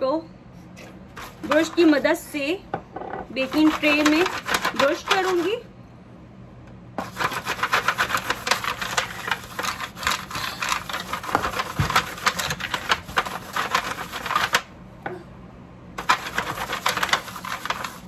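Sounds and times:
brush scrubbing foil pan: 1.2 - 2.0, 3.4 - 5.6, 7.0 - 14.6, 16.0 - 18.0
foil crinkling: 7.0 - 14.7, 16.0 - 18.0.

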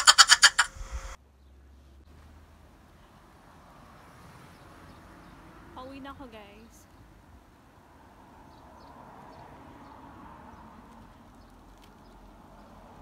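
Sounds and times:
low rumble: 0.5 - 1.2.

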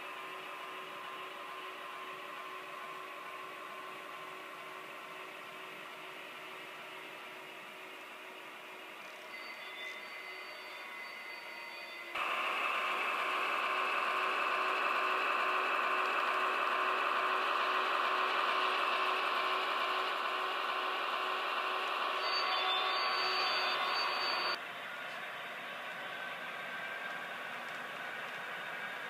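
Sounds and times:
model train motor hum: 12.2 - 29.0.

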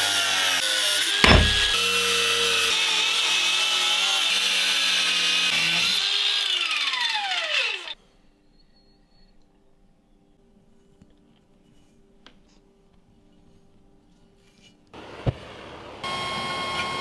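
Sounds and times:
angle grinder cutting steel: 3.9 - 8.0.

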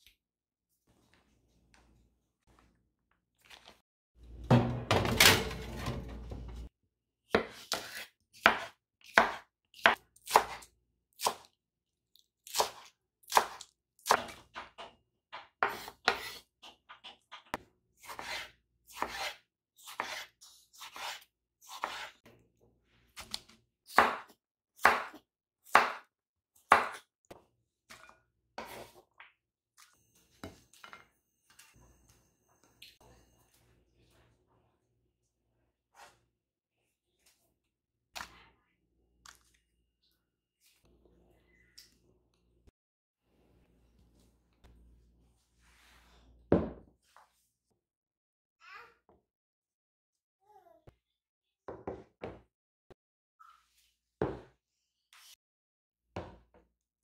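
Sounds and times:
knife chopping on wooden board: 7.3 - 11.4, 15.6 - 16.4, 23.9 - 26.1, 26.7 - 27.0.

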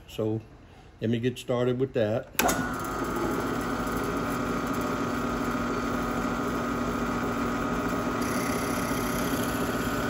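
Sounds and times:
drill press humming: 2.4 - 10.0
drill bit boring into wood: 4.7 - 10.0.

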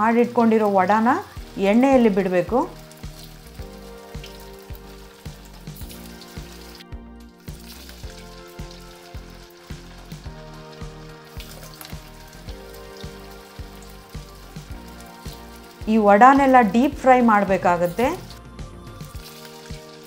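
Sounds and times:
background music with steady beat: 0.0 - 20.0
oil sizzling while deep-frying: 0.0 - 20.0.

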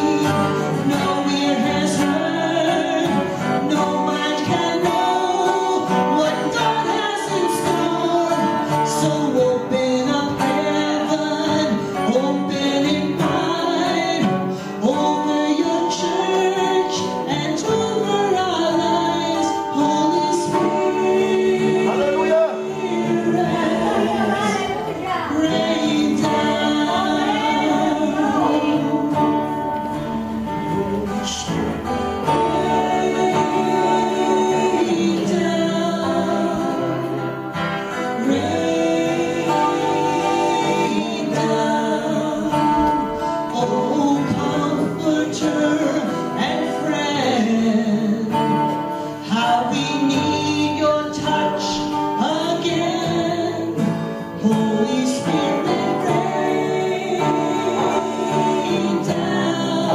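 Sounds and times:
woman singing into microphone: 0.0 - 29.9
acoustic guitar: 0.0 - 59.9.

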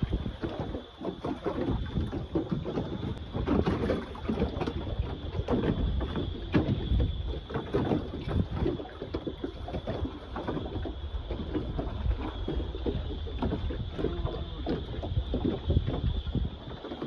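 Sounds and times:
water splashing: 0.0 - 17.0
wind rumble on microphone: 0.0 - 17.0.

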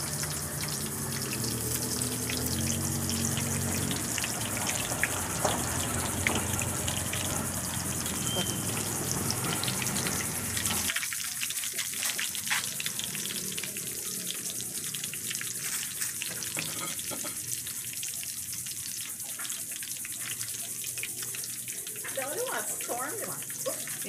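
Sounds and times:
shrimp deep-frying in oil: 0.0 - 24.0.

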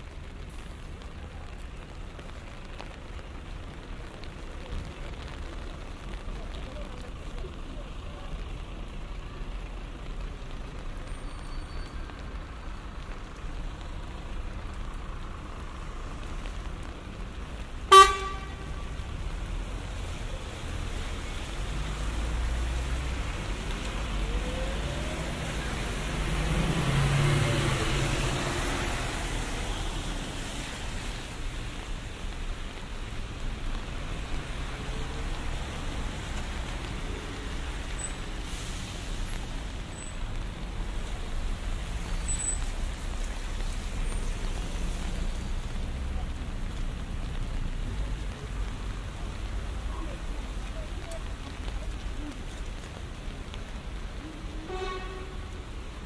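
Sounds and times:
city street traffic: 0.0 - 56.0
vehicle horn toot: 17.9 - 18.8, 54.7 - 55.4
vehicle passing close: 22.7 - 29.6.

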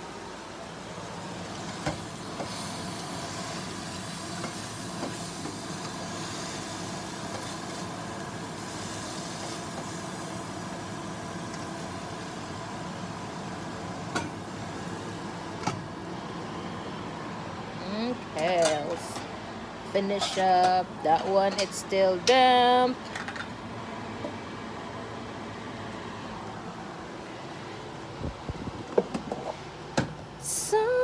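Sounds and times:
vegetables simmering with hiss: 0.0 - 21.2.

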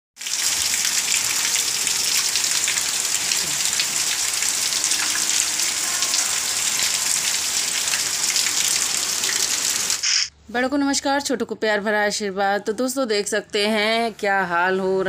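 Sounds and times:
heavy rain on pavement: 0.2 - 10.3.

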